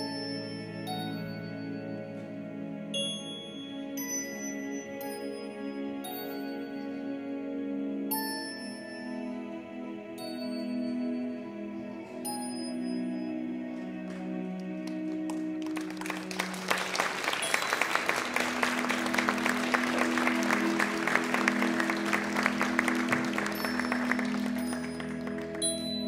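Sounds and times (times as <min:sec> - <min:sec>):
soft sustained music tones: 0:00.0 - 0:26.0
audience applauding: 0:14.0 - 0:26.0.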